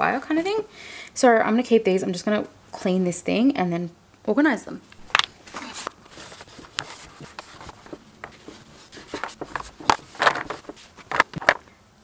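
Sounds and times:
small clicks and knocks: 5.0s - 11.7s
paper towel wiping plastic: 5.5s - 11.6s.

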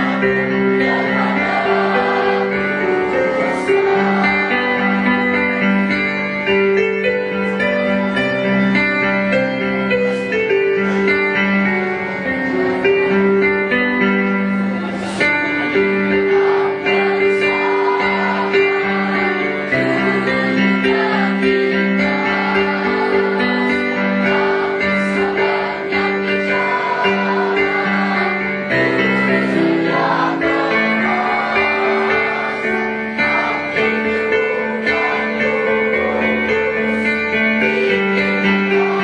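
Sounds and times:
choir singing: 0.0s - 5.7s, 14.8s - 39.0s
piano accompaniment: 0.0s - 39.0s.

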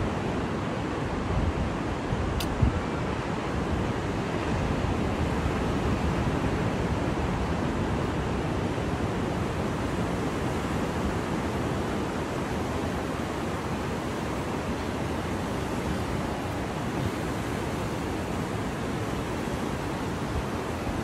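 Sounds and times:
sea surf rushing: 0.0s - 21.0s
wind on microphone: 0.0s - 21.0s.

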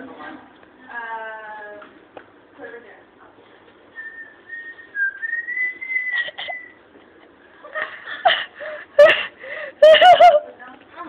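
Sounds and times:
person whistling: 4.0s - 6.8s.

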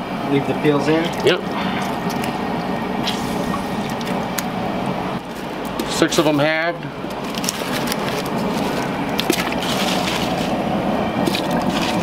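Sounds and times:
gas burner rushing: 0.0s - 12.0s.

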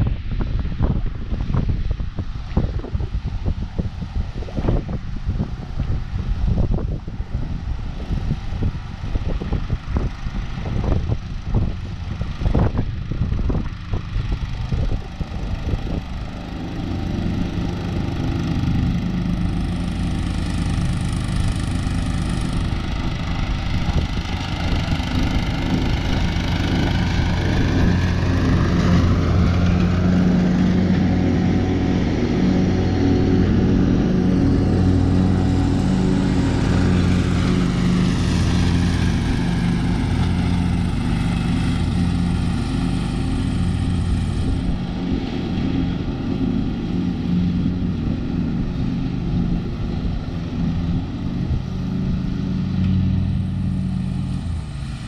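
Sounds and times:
wind buffeting microphone: 0.0s - 55.0s
lawn tractor engine mowing: 0.1s - 55.0s.

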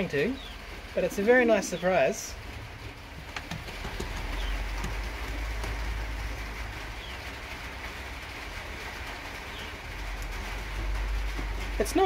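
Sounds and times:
pigeons calling: 2.9s - 7.5s.

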